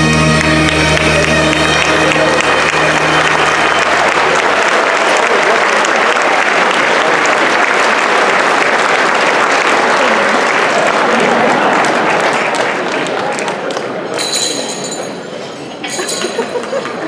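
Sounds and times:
music chord: 0.0s - 3.9s
large audience applauding: 0.0s - 14.2s.

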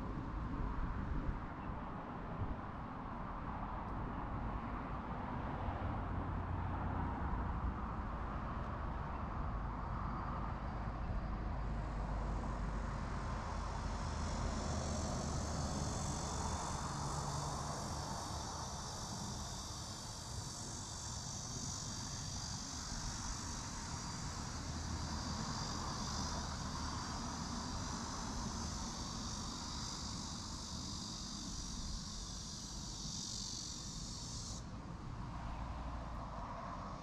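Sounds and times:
insects buzzing: 10.0s - 37.0s.

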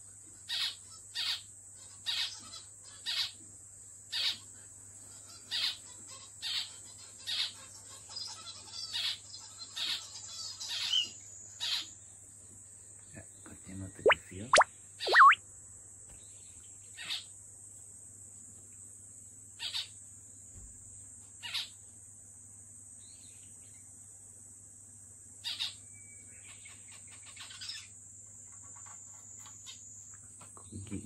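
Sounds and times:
finch short calls: 14.1s - 15.4s.

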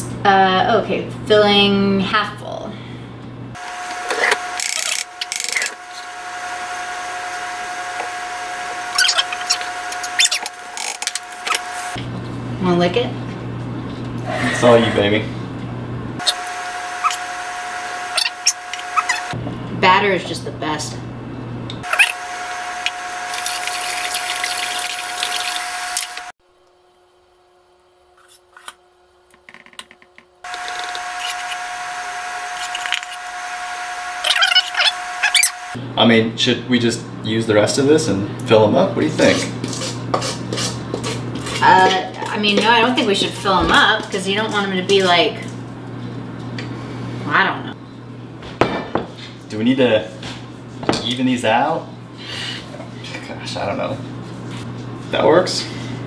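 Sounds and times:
electric motor hum: 2.8s - 26.8s, 29.9s - 48.4s
spoon scraping metal bowl: 39.1s - 43.5s.

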